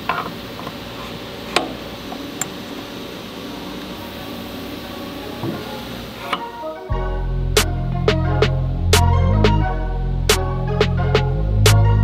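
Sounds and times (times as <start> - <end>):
fan-like hum: 0.0 - 9.1.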